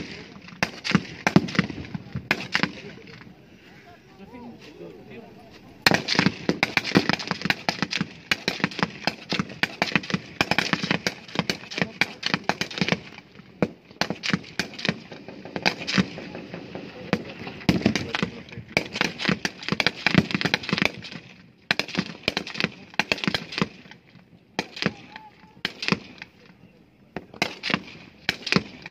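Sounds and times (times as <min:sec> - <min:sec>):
rifle gunfire: 0:00.0 - 0:03.1, 0:05.8 - 0:23.8, 0:27.2 - 0:28.9.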